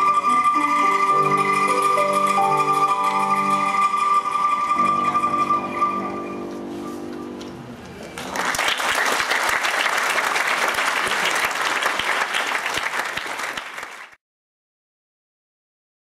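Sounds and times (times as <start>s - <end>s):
audience applause: 8.0s - 14.2s.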